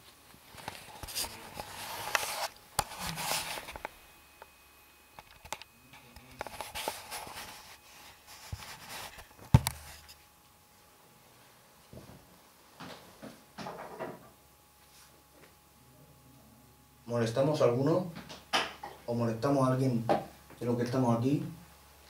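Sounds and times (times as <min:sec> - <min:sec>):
people rustling and shuffling: 0:00.0 - 0:03.8, 0:06.0 - 0:10.1.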